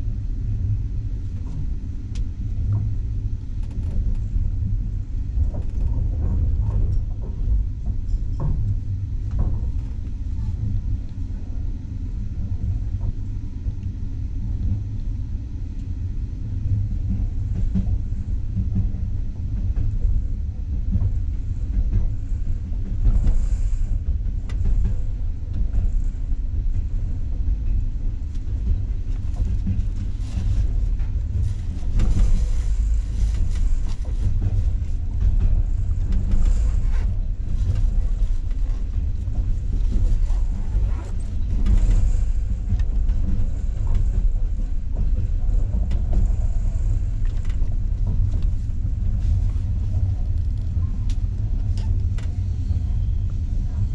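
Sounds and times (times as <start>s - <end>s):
train carriage rumbling: 0.0s - 53.9s.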